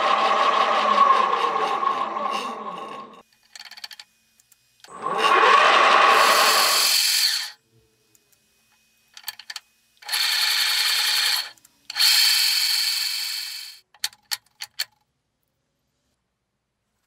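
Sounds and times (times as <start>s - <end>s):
drill press motor whine: 0.0s - 3.2s, 4.9s - 7.5s.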